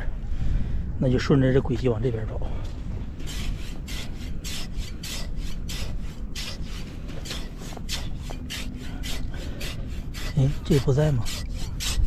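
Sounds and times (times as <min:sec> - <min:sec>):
metal blade scraping wet sand: 0:03.2 - 0:12.0.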